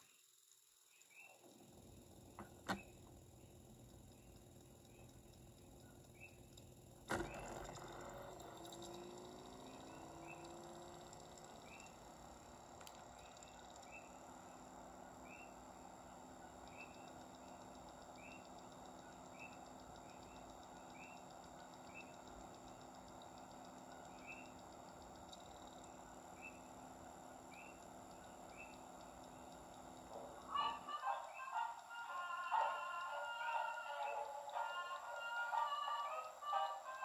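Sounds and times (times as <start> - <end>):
faint steady hiss: 0.0 - 37.0
faint high chirp: 16.4 - 26.7, 27.5 - 29.7.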